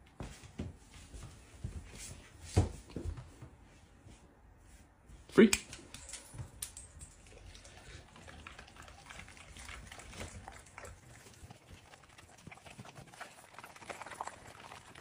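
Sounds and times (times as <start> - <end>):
dog chewing and licking food: 6.4 - 15.0.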